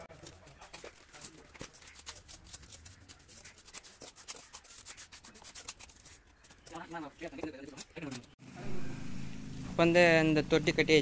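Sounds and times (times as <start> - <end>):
trowel scraping mortar on brick: 0.6 - 8.4.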